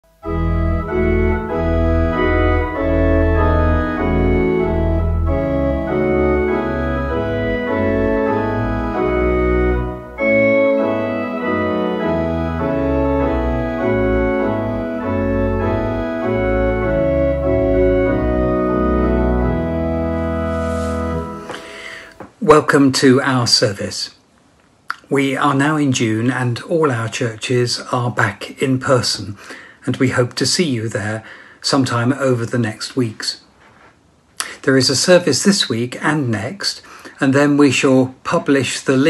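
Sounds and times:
organ chords: 0.0s - 22.3s.

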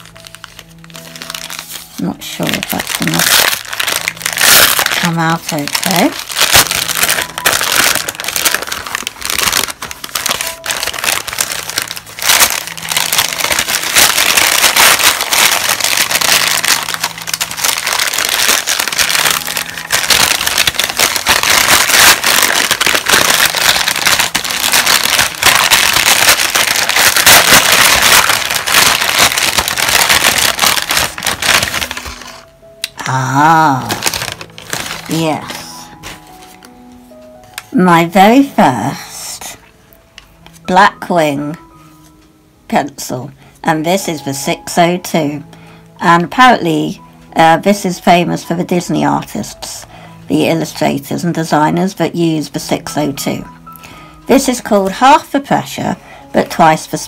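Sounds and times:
paper crinkling and crumpling: 0.0s - 37.8s.

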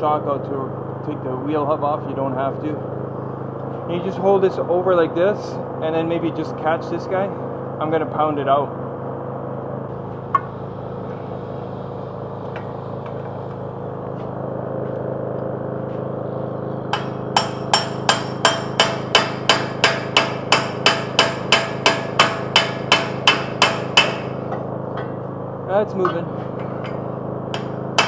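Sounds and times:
low hum: 0.0s - 28.0s
hammer striking metal: 10.3s - 10.6s, 16.9s - 25.2s, 26.0s - 28.0s.

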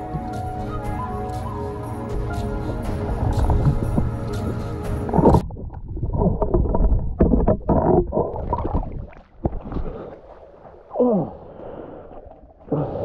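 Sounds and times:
background music: 0.0s - 5.4s
muffled underwater sloshing: 0.0s - 13.0s.

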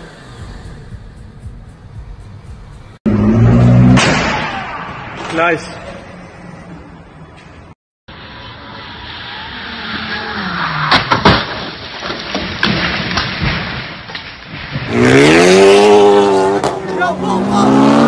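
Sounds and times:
car engine revving: 2.9s - 4.8s, 14.9s - 18.0s
car crash impact bangs: 3.7s - 5.4s, 10.7s - 15.6s
debris knocking: 10.9s - 15.0s.

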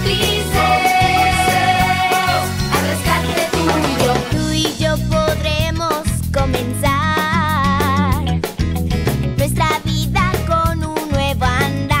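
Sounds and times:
person singing pop song: 0.0s - 8.4s
beat and bass line: 0.0s - 12.0s.

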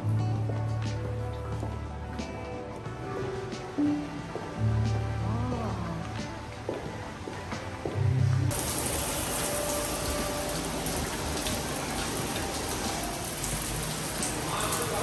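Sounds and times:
background music: 0.0s - 15.0s
water pouring and splashing: 8.5s - 15.0s.

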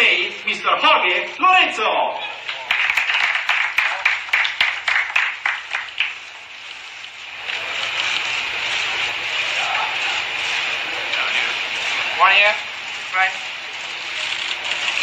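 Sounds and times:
small group applauding: 2.4s - 7.0s.

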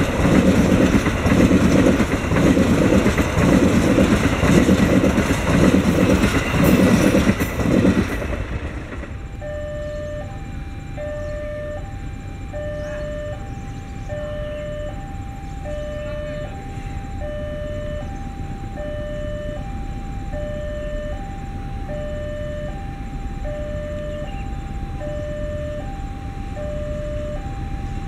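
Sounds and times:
diesel locomotive rumble: 0.0s - 28.0s
two-tone crossing alarm: 0.0s - 28.0s.

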